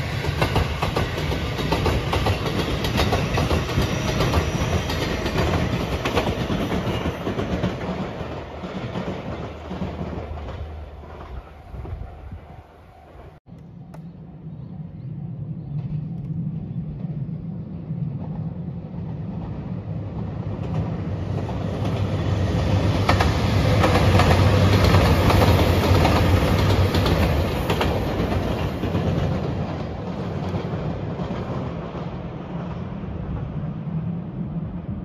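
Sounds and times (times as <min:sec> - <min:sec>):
train wheels clicking over rail joints: 0:00.1 - 0:11.9, 0:20.5 - 0:32.7.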